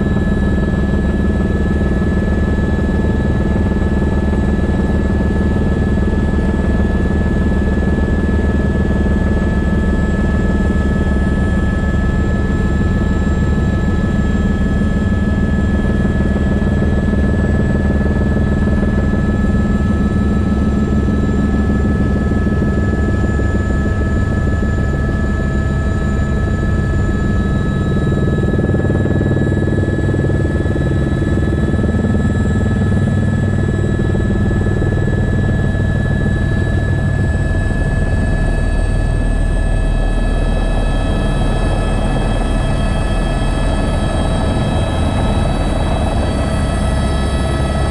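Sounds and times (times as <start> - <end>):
helicopter engine and rotor drone: 0.0 - 47.9.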